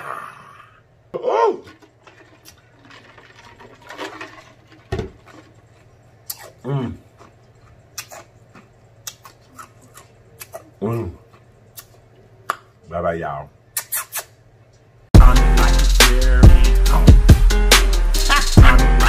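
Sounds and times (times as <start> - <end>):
lip smacks and mouth clicks: 6.2 - 6.6, 7.2 - 12.7, 13.7 - 14.8.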